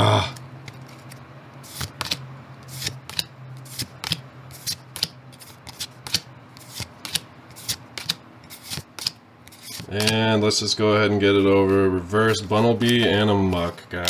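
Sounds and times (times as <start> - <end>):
cards swishing off a stack: 0.7 - 10.2.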